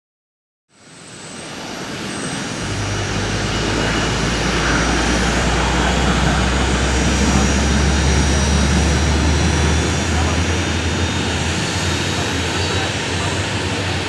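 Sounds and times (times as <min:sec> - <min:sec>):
jet engines roaring: 0:00.8 - 0:14.0.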